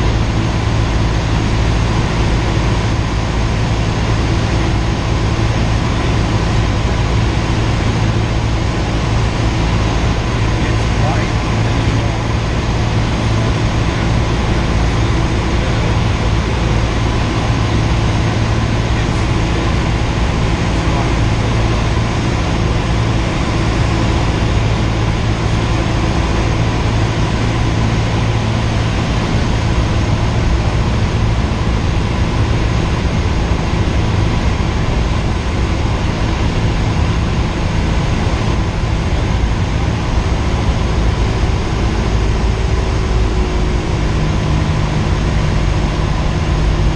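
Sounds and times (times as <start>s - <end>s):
airplane engine drone in cabin: 0.0s - 46.9s.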